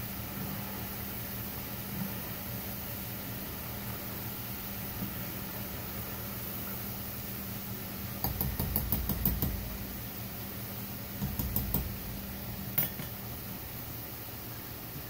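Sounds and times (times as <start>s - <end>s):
hot oil frying hiss: 0.0s - 15.0s
low hum: 9.4s - 13.8s
metal utensils tapping a pot: 12.8s - 13.2s.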